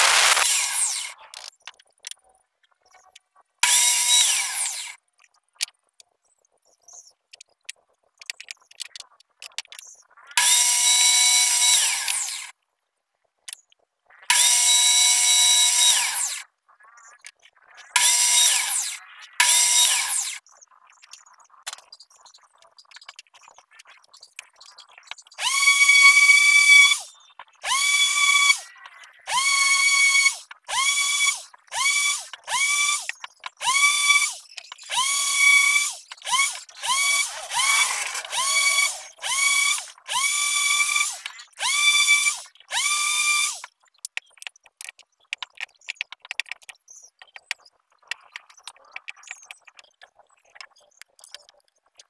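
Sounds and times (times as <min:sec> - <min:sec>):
orbital sander sanding wood: 0:00.0 - 0:01.1, 0:35.8 - 0:39.9.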